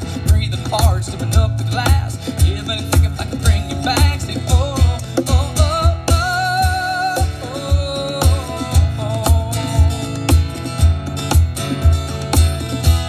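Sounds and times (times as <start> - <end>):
man singing: 0.0 - 10.4
cajon beat: 0.0 - 13.0
strummed acoustic guitar: 0.0 - 13.0.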